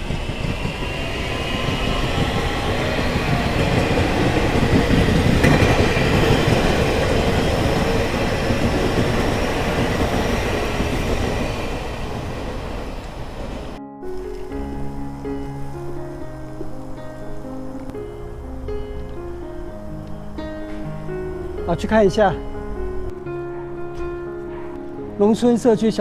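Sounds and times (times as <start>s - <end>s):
train wheels rumbling over rails: 0.0s - 13.8s.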